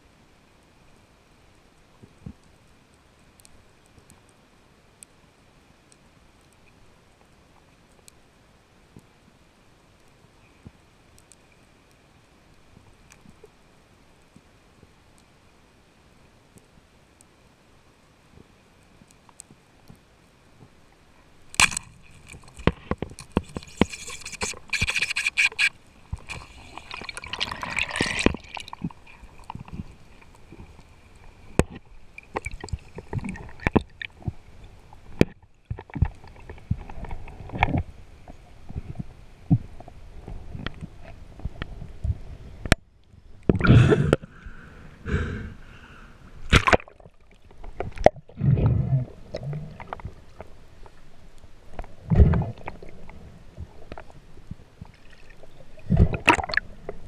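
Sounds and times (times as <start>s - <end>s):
muffled underwater sloshing: 21.6s - 37.8s
water rushing bursts: 23.5s - 30.2s.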